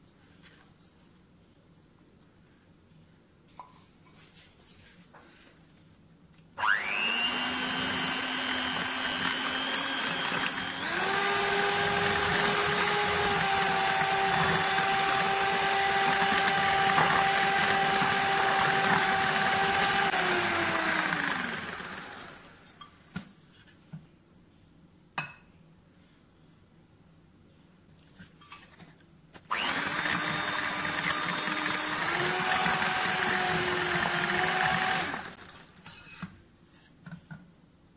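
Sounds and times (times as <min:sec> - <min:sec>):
electric hand mixer whisking: 0:06.6 - 0:22.8, 0:29.5 - 0:35.6.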